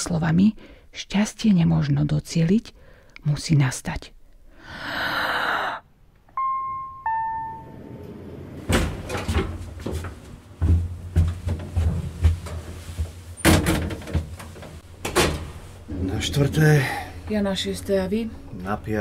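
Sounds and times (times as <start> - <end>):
lift chime two electronic notes: 6.3 - 8.1
low hum: 6.3 - 8.7
lift doors knocking and clunking: 7.9 - 15.6.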